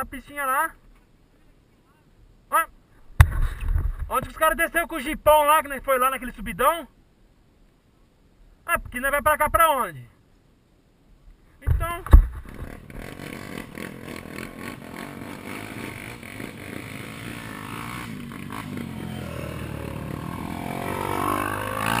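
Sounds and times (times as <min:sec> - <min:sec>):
second dirt bike engine: 0:11.9 - 0:22.0
dirt bike engine idling: 0:12.4 - 0:22.0.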